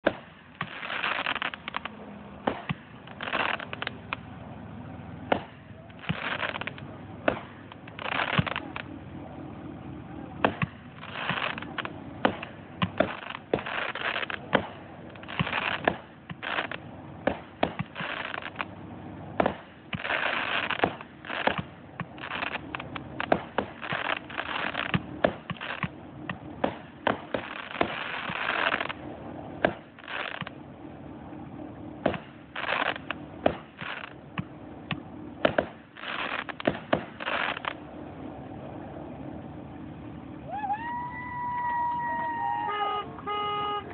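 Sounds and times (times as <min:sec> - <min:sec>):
firework launch reports: 0:00.0 - 0:04.2, 0:05.2 - 0:09.0, 0:09.9 - 0:18.7, 0:35.4 - 0:37.8
firework shells bursting: 0:00.0 - 0:04.3, 0:05.3 - 0:09.0, 0:10.4 - 0:18.7, 0:19.3 - 0:30.6, 0:32.0 - 0:37.8.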